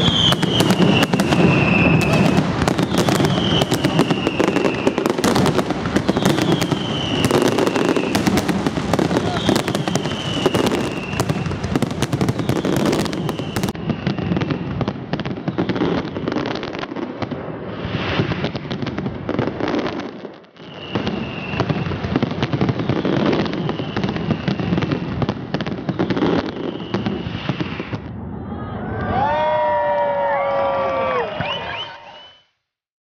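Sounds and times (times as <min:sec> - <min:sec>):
fireworks whistles falling in pitch: 0:00.0 - 0:16.8, 0:20.6 - 0:28.2, 0:31.2 - 0:32.6
fireworks crackling and banging: 0:00.0 - 0:28.4.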